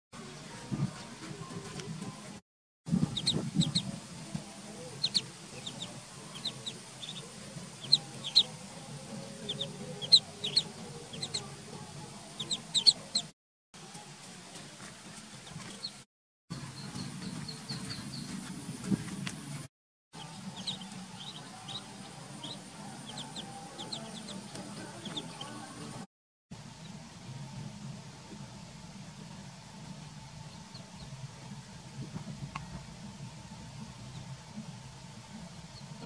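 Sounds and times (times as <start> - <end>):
ducklings peeping: 3.0 - 4.0, 4.6 - 11.5, 12.3 - 13.3, 20.2 - 25.9.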